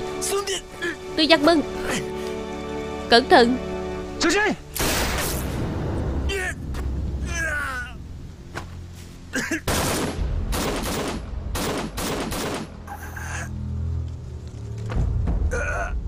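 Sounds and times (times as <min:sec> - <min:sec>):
low music drone: 0:00.0 - 0:16.0
rifle fire: 0:04.8 - 0:05.6, 0:09.7 - 0:12.8.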